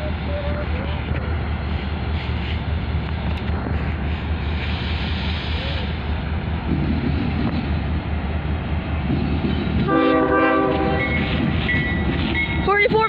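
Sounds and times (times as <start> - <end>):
diesel locomotive rumble: 0.0 - 13.0
locomotive air horn: 9.9 - 11.3.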